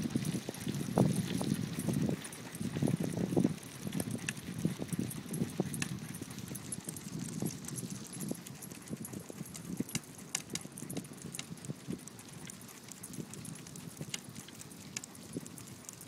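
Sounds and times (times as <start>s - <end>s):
paws pattering on asphalt: 0.0s - 16.0s.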